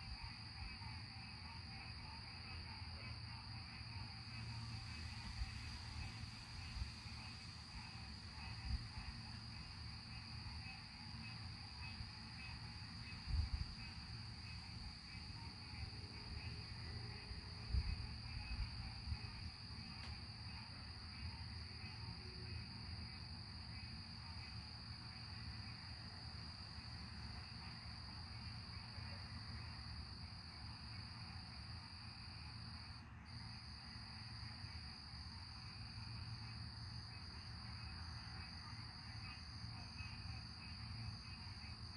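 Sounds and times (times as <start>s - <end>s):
faint low rumble: 0.0s - 22.6s
crickets chirping: 0.0s - 41.9s.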